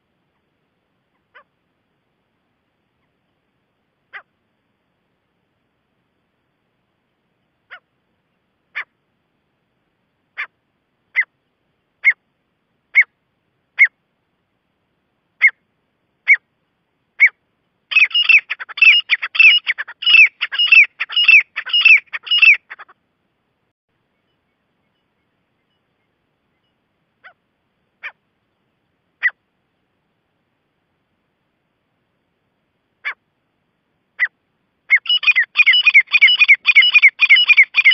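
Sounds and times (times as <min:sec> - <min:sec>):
francolin calling: 0:10.3 - 0:12.3, 0:12.9 - 0:14.0, 0:15.4 - 0:16.5, 0:17.2 - 0:23.0, 0:24.0 - 0:29.4, 0:34.2 - 0:37.9.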